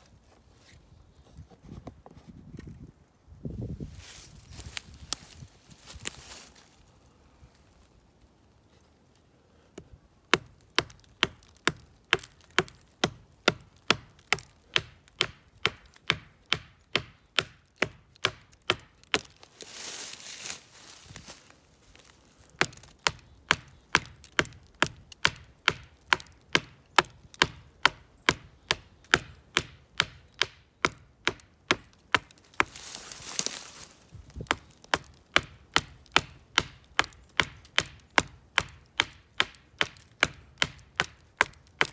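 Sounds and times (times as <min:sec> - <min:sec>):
axe chopping wood: 0:09.8 - 0:19.4, 0:22.6 - 0:41.9.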